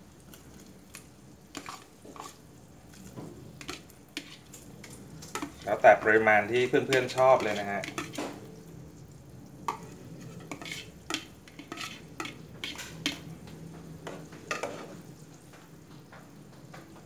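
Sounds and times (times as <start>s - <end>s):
spatula scraping bowl: 1.5s - 2.4s, 3.0s - 8.4s, 9.7s - 13.3s.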